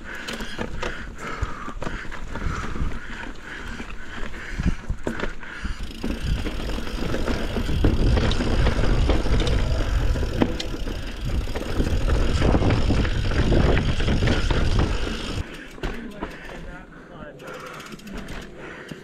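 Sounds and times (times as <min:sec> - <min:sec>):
bike knocking and rattling: 0:00.0 - 0:16.8, 0:17.4 - 0:19.0
bike tyre noise on dirt: 0:00.0 - 0:16.8
wind buffeting microphone: 0:04.4 - 0:15.5.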